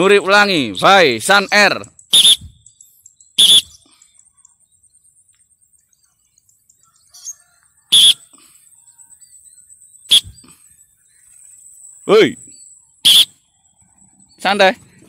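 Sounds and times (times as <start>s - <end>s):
lorikeet screeching: 2.0s - 2.6s, 3.4s - 3.8s, 7.0s - 8.3s, 10.0s - 10.4s, 13.0s - 13.6s
high-pitched insect buzz: 2.0s - 13.7s.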